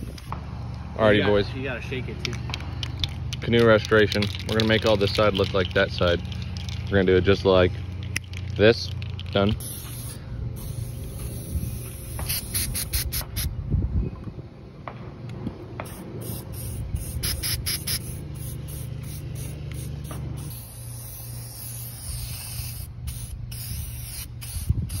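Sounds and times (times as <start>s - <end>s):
spray can hissing: 9.0s - 13.5s, 15.8s - 25.0s.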